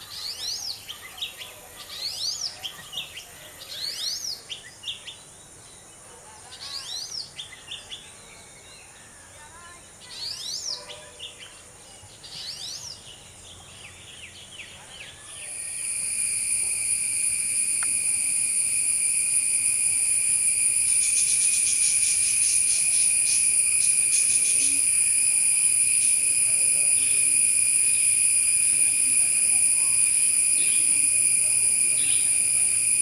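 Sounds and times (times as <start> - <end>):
bird singing whistled phrases: 0.0 - 5.2, 10.1 - 11.4, 12.3 - 13.1, 15.0 - 33.0
high insect drone: 0.0 - 5.9, 15.1 - 33.0
rapid pulsing insect sound: 0.0 - 33.0.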